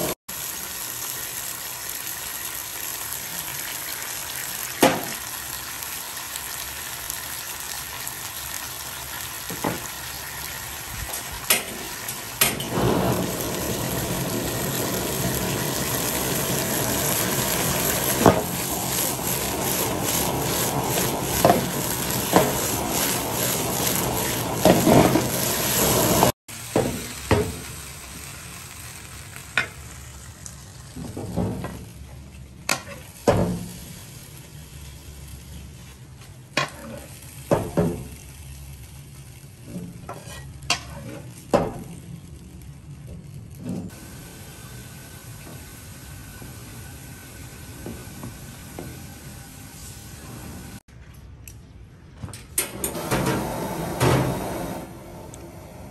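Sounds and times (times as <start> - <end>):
food sizzling in a pan: 0.0 - 50.9.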